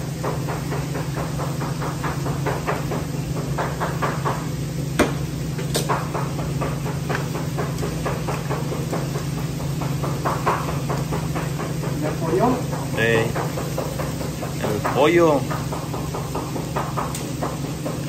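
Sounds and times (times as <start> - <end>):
knife chopping on cutting board: 5.0 - 18.0.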